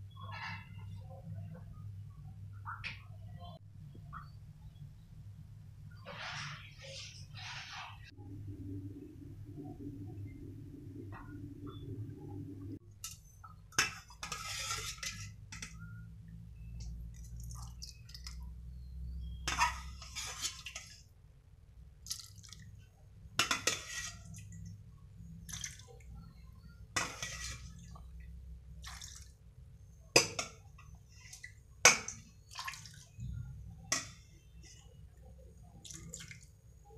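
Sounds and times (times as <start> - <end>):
low steady rumble: 8.1 - 13.7, 33.0 - 35.9
broth bubbling: 35.7 - 36.6.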